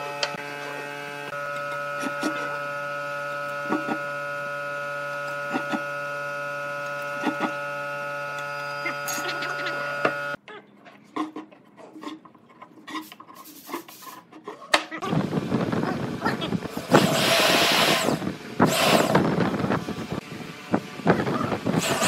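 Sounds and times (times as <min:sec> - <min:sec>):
electrical hum: 0:00.0 - 0:10.4, 0:15.0 - 0:22.0.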